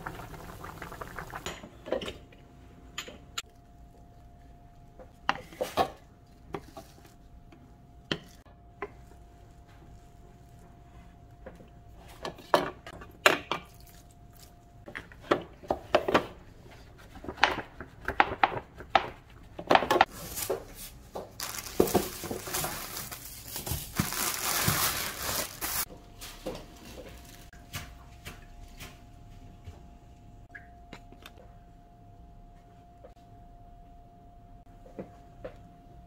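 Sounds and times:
plastic crinkling: 21.4s - 25.9s.

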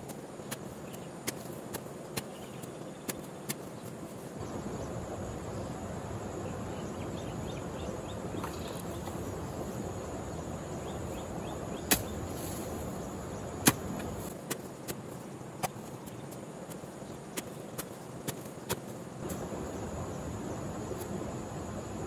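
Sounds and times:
hoe striking damp soil: 0.0s - 4.2s, 11.7s - 19.6s.

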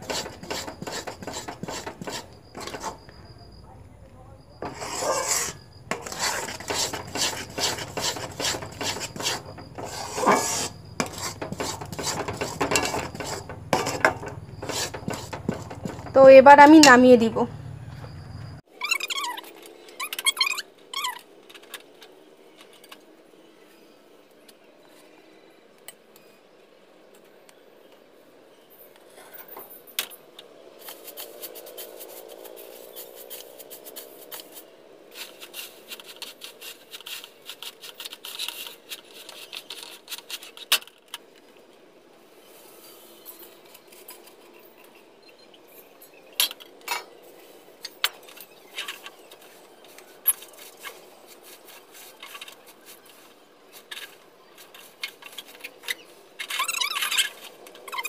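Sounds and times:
scraping and rustling: 0.0s - 3.3s, 4.5s - 16.6s, 30.8s - 41.5s, 46.4s - 58.0s
metal cookware clinking: 4.6s - 17.1s.

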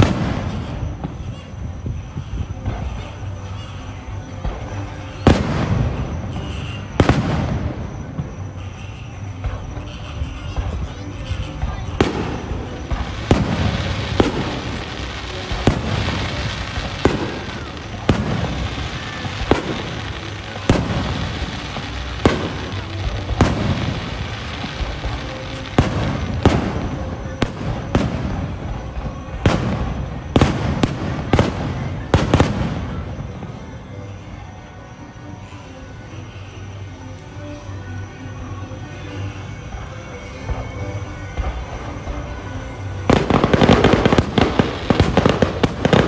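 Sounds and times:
firework shells bursting: 4.4s - 33.2s.

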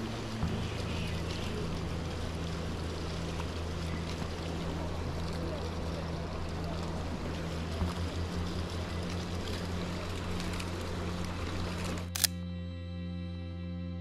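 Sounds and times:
river water rushing: 0.0s - 12.2s
low steady hum: 0.0s - 14.0s
music: 0.0s - 14.0s
camera shutter click: 12.1s - 12.4s.

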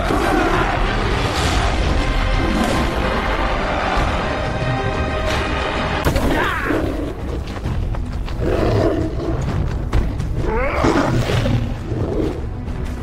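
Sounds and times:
dramatic music: 0.0s - 13.0s
lion roaring and snarling: 8.3s - 12.5s.

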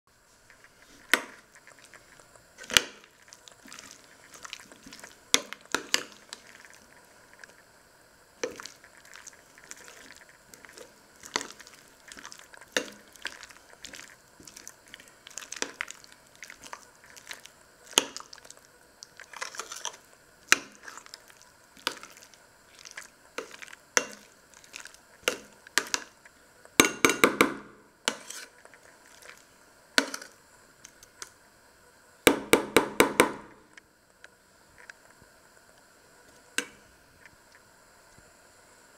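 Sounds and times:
metal utensil scraping saucepan: 28.1s - 28.5s.

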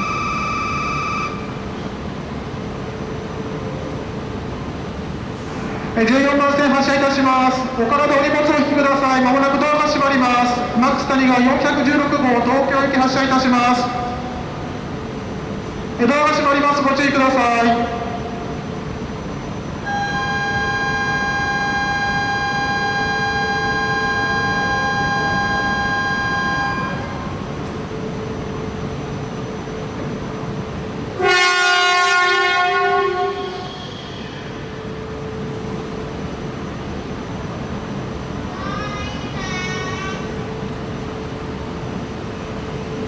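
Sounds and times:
standing train humming: 0.0s - 43.0s
train horn blast: 19.9s - 27.2s, 31.2s - 33.8s.

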